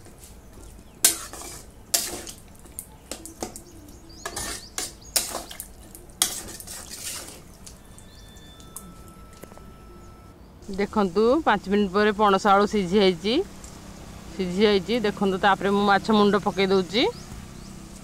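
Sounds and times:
metal spatula scraping a pot: 1.0s - 2.4s, 4.2s - 7.5s.

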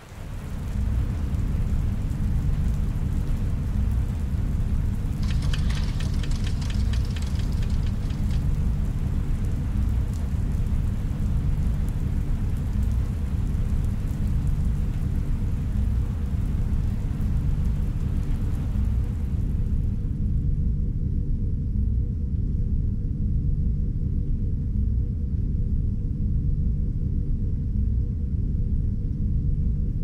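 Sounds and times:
deep rumbling drone: 0.3s - 30.0s
light clicks: 5.2s - 10.2s.

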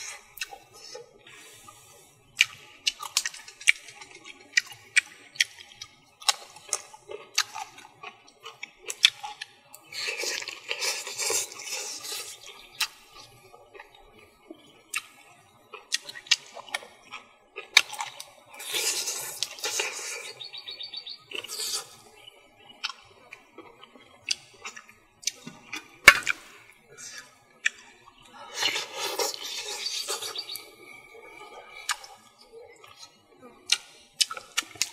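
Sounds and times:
slurping: 9.3s - 13.2s, 17.8s - 22.1s, 28.4s - 34.9s
wet mouth smacks while chewing: 33.7s - 34.9s.

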